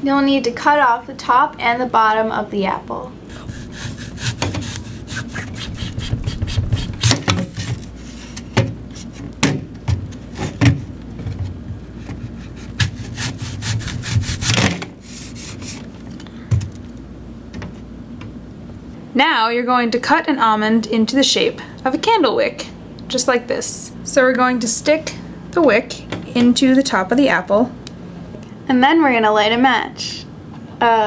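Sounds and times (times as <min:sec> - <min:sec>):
knife sawing through apple: 0:03.3 - 0:08.1, 0:12.3 - 0:15.8.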